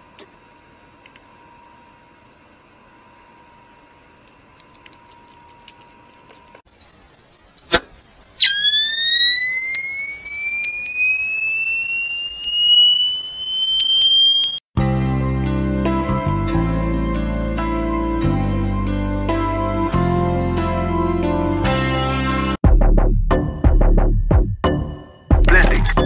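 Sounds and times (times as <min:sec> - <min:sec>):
electronic charging whine: 0:06.8 - 0:14.7.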